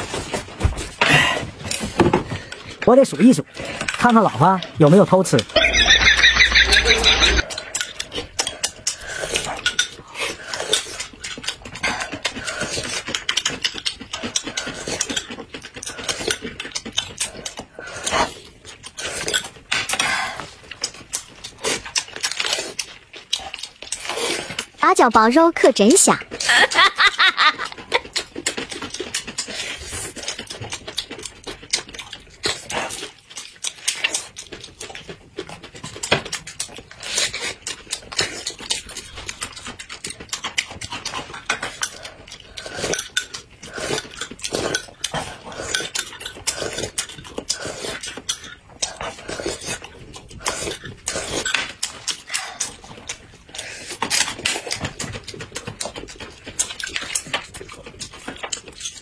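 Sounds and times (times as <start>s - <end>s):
wet chewing: 3.4s - 59.0s
crunchy bites: 5.5s - 7.9s.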